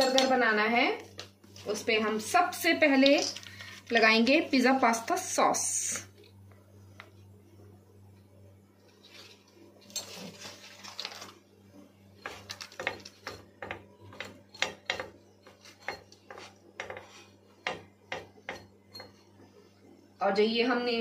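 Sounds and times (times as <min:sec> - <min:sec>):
spatula scraping on iron griddle: 0:15.4 - 0:17.5.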